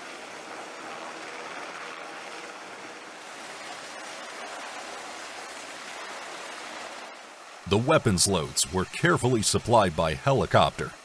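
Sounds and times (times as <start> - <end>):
wind: 0.0 - 7.7.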